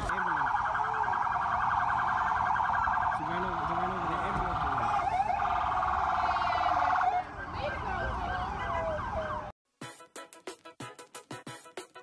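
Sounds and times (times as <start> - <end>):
emergency vehicle sirens: 0.0 - 9.6
music with a regular beat: 9.7 - 12.0.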